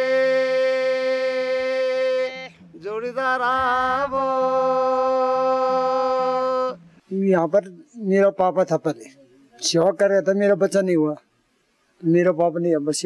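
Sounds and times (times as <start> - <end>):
man singing folk song: 0.0 - 6.8.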